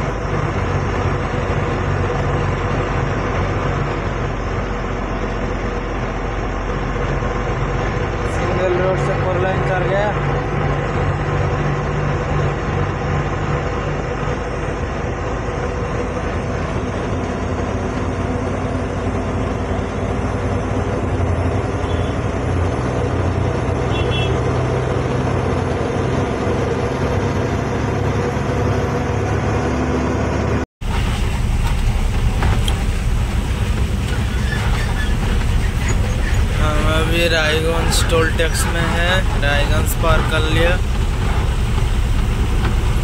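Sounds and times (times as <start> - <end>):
road and tyre noise: 0.0 - 43.0
truck diesel engine running: 0.0 - 43.0.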